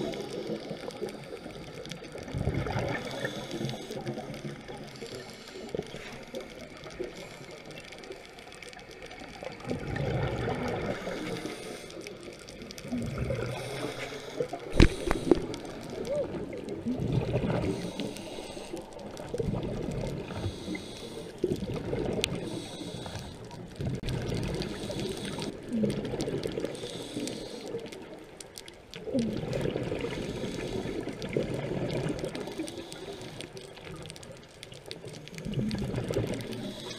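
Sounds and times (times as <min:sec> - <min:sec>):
exhaled bubbles rising: 0:02.1 - 0:03.2, 0:09.3 - 0:11.5, 0:12.1 - 0:18.2, 0:18.8 - 0:20.4, 0:21.4 - 0:22.6, 0:23.6 - 0:26.8, 0:29.0 - 0:32.6, 0:33.9 - 0:36.9
diver breathing through regulator: 0:02.9 - 0:04.2, 0:10.8 - 0:12.4, 0:13.0 - 0:16.0, 0:17.5 - 0:19.0, 0:20.2 - 0:21.5, 0:22.2 - 0:23.6, 0:24.6 - 0:25.6, 0:26.6 - 0:28.0, 0:30.0 - 0:31.3, 0:32.4 - 0:33.8, 0:36.2 - 0:36.9.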